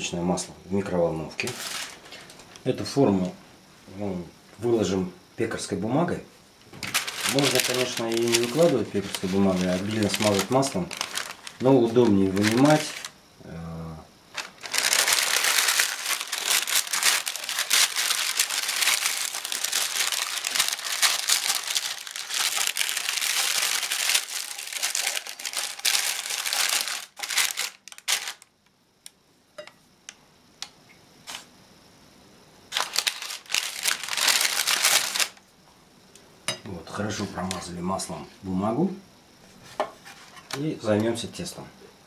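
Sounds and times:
baking paper crinkling: 0:01.4 - 0:02.4, 0:06.8 - 0:13.2, 0:14.3 - 0:28.5, 0:32.7 - 0:35.4.

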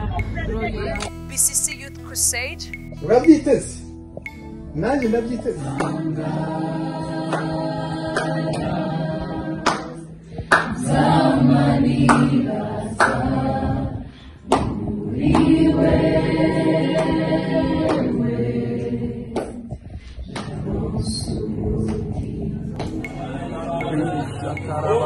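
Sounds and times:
choir singing: 0:05.0 - 0:25.0.

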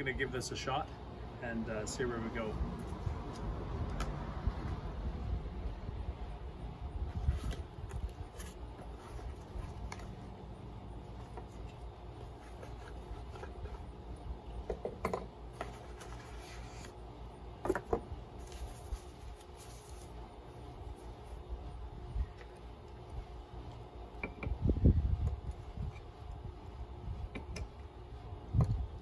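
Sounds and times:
low background rumble: 0:00.0 - 0:29.0
packing paper and plastic crinkling: 0:18.3 - 0:20.2.

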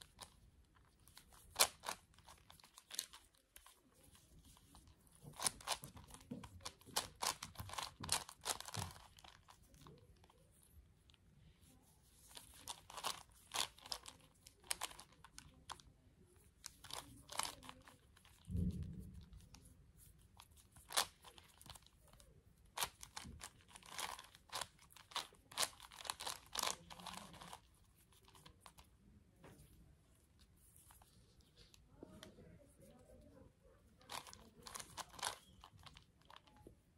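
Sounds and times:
puzzle cube clicking: 0:01.0 - 0:10.3, 0:12.2 - 0:15.8, 0:16.6 - 0:18.5, 0:20.4 - 0:28.9, 0:34.0 - 0:36.6.

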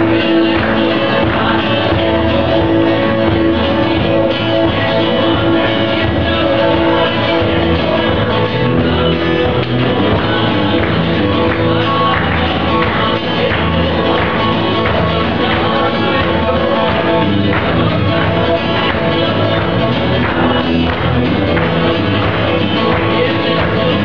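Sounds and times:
drums: 0:00.0 - 0:24.0
guitars strummed and picked: 0:00.0 - 0:24.0
person singing: 0:00.0 - 0:24.0.

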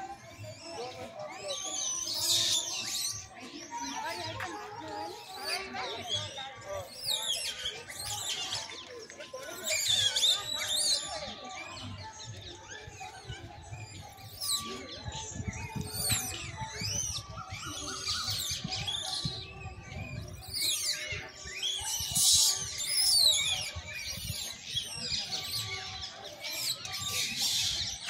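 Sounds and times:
small birds chirping: 0:00.0 - 0:28.0
wind rumble on microphone: 0:15.0 - 0:20.5.

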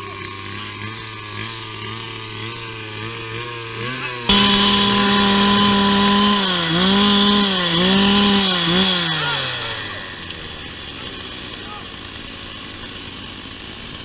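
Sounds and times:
two-stroke engine revving: 0:00.0 - 0:14.0.

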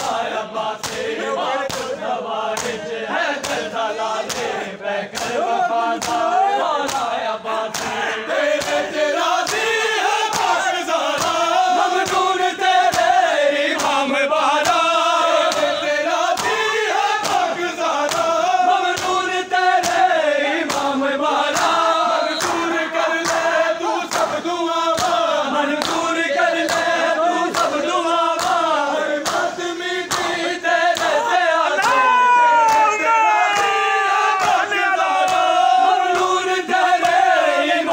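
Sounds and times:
crowd of men chanting: 0:00.0 - 0:37.9
chest-beating slaps: 0:00.8 - 0:05.4, 0:06.0 - 0:08.0, 0:08.6 - 0:13.2, 0:13.8 - 0:14.0, 0:14.6 - 0:16.6, 0:17.2 - 0:18.4, 0:19.0 - 0:25.2, 0:25.8 - 0:27.8, 0:28.4 - 0:32.1, 0:34.4 - 0:35.6, 0:37.0 - 0:37.3.

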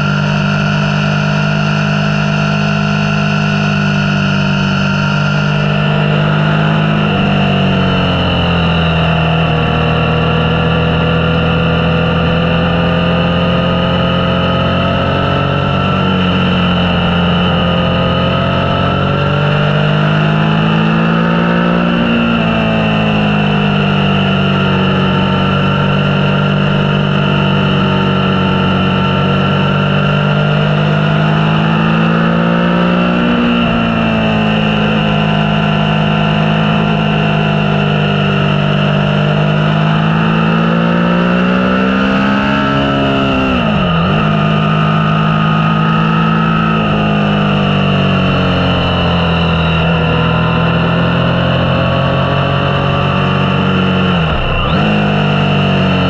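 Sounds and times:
motorcycle engine running: 0:00.0 - 0:56.0.

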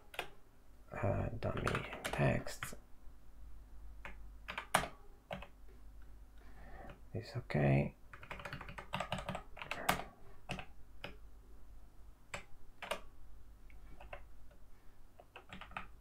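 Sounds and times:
keyboard keys pressed: 0:08.1 - 0:11.2, 0:12.3 - 0:13.1, 0:15.2 - 0:16.0.

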